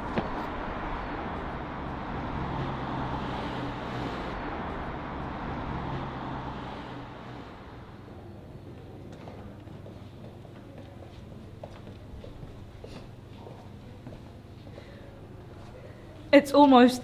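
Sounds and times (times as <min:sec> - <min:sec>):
vehicle engine hum: 0:00.0 - 0:16.3
road rumble: 0:00.0 - 0:16.4.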